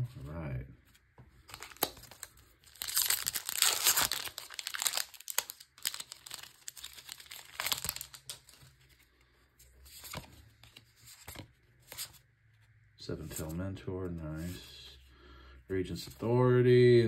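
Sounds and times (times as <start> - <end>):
foil wrapper crinkling: 1.5 - 8.6.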